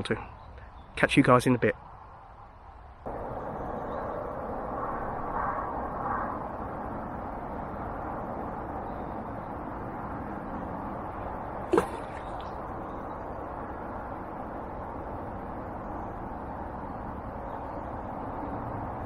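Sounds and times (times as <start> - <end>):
outdoor background rush: 0.0 - 19.0.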